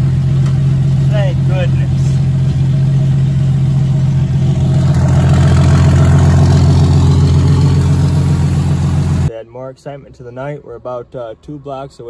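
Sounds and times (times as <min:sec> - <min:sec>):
car engine idling: 0:00.0 - 0:09.3.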